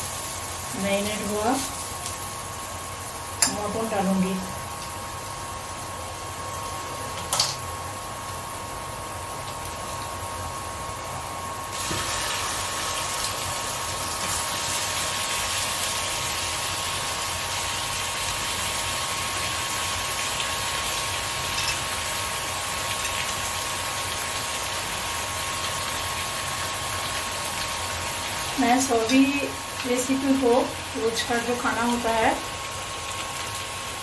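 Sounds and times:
meat sizzling in hot oil: 0:00.0 - 0:34.0.

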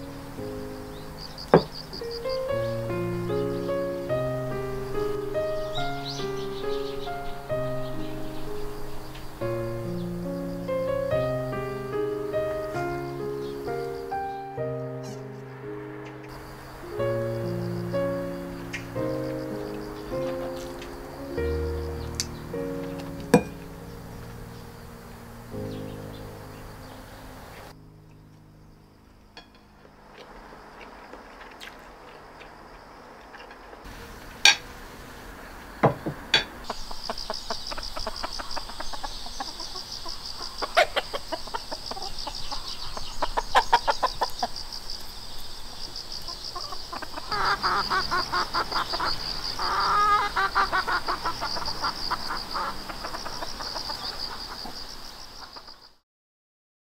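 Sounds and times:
insect trill: 0:00.0 - 0:56.0
chickens clucking: 0:35.6 - 0:45.2, 0:46.1 - 0:55.8.

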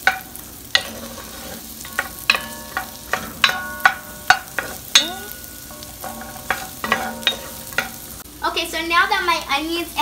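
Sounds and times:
vegetables sizzling in butter: 0:00.0 - 0:10.0
wooden spatula knocking on pot: 0:01.8 - 0:08.1.

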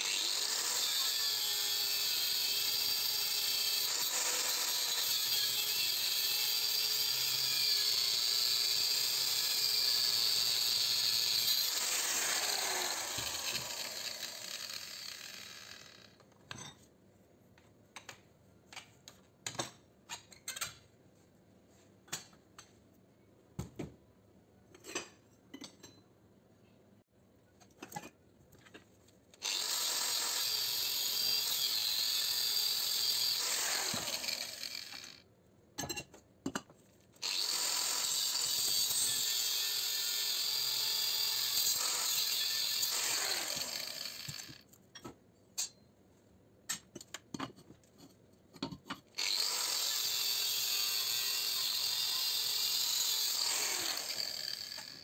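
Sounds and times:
angle grinder grinding metal: 0:00.0 - 0:16.2, 0:29.4 - 0:35.2, 0:37.2 - 0:44.6, 0:49.2 - 0:55.0.

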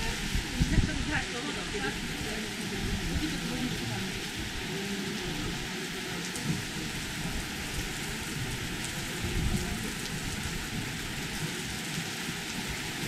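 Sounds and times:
heavy rain pouring: 0:00.0 - 0:13.0
low rumble of thunder: 0:06.4 - 0:11.9.

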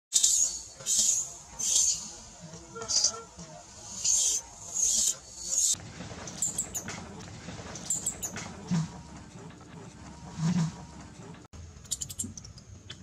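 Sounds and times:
baby monkey screaming: 0:00.2 - 0:02.1
high squeaks from baby monkey: 0:00.2 - 0:02.1, 0:03.9 - 0:05.8.

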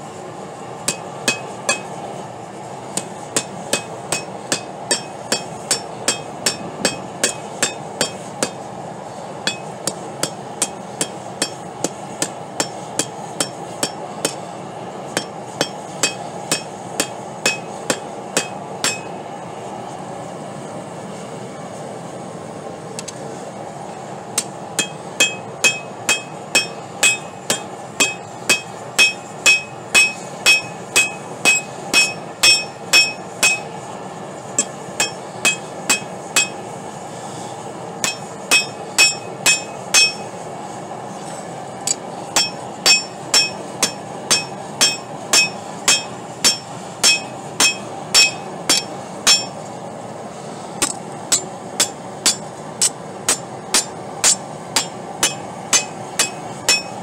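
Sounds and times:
gas forge hissing: 0:00.0 - 0:57.0
hammer striking steel on anvil: 0:00.8 - 0:02.0, 0:02.9 - 0:08.7, 0:09.4 - 0:14.5, 0:15.1 - 0:19.2, 0:24.4 - 0:33.9, 0:34.6 - 0:36.7, 0:38.0 - 0:40.4, 0:41.9 - 0:49.6, 0:50.8 - 0:57.0.

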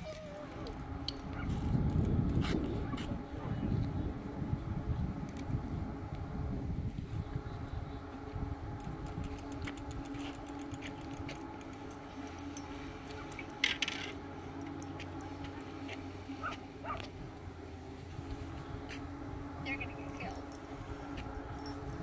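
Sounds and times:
dog whining: 0:00.0 - 0:01.6
dog yelping: 0:00.0 - 0:01.6, 0:16.4 - 0:17.1
steady low hum: 0:00.0 - 0:22.0.

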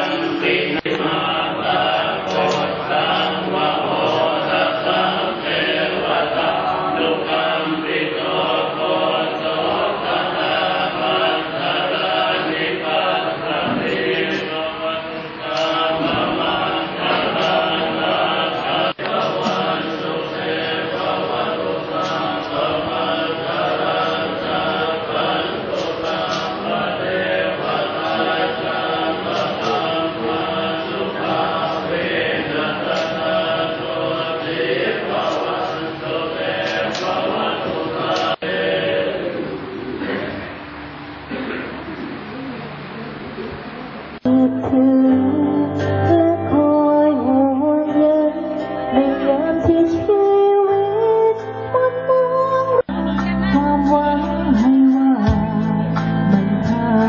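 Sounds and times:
monks chanting together: 0:00.0 - 0:44.3.

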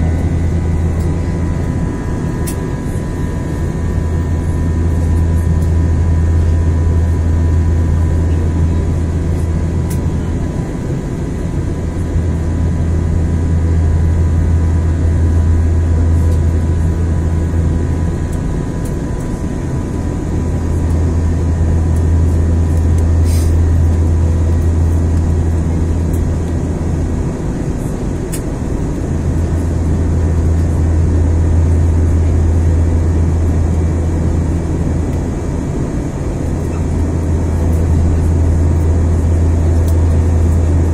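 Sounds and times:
jet engines droning: 0:00.0 - 0:40.9
rushing air in cabin: 0:22.9 - 0:25.0.

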